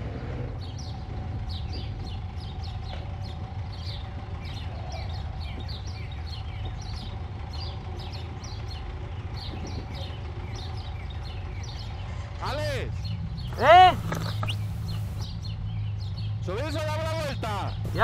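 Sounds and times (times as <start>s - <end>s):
motorcycle engine running: 0.0s - 12.1s, 13.0s - 16.4s, 17.7s - 18.0s
birds chirping: 0.5s - 18.0s.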